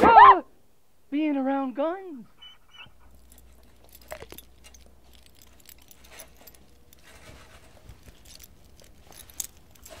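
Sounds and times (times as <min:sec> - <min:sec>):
soft rustling: 0:02.4 - 0:10.0.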